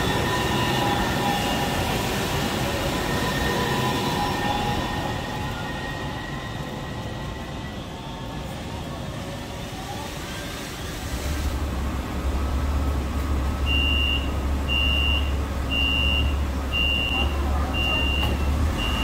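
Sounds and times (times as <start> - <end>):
tram approaching on wet track: 0.0 - 19.0
tram humming: 0.0 - 19.0
door warning beeps: 13.7 - 19.0.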